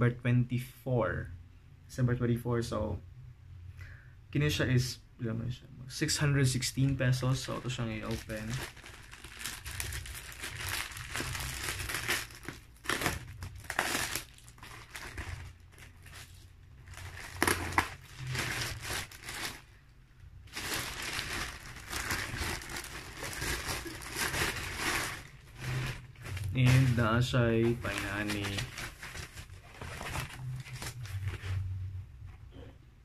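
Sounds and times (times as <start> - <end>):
plastic wrapping crinkling: 7.0 - 19.8, 20.4 - 31.7.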